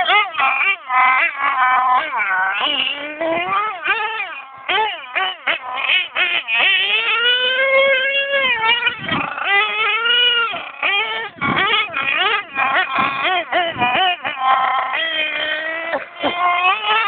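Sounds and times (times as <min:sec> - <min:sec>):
small engine revving: 0:00.0 - 0:17.0.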